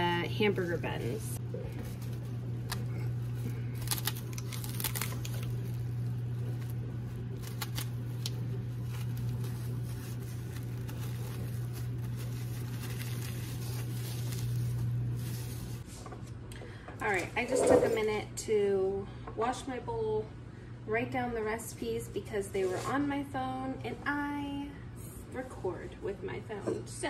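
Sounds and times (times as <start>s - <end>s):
cling wrap crinkling: 0.0s - 15.9s
steady low hum: 0.0s - 27.0s.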